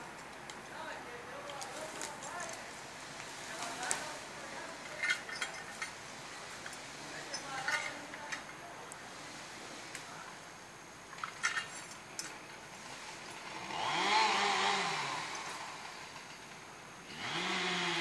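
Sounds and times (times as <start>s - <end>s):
engine revving: 12.9s - 16.3s, 17.1s - 18.0s.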